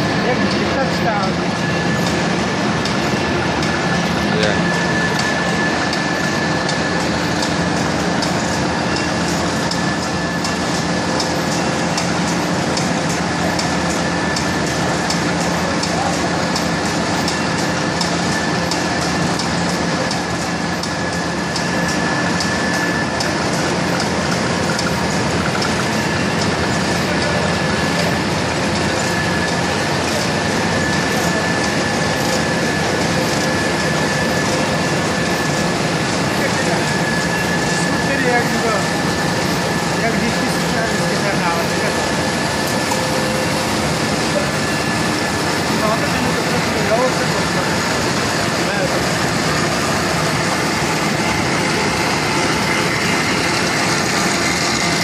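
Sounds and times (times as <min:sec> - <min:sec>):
printing press running: 0:00.0 - 0:55.0
high whine: 0:24.5 - 0:55.0.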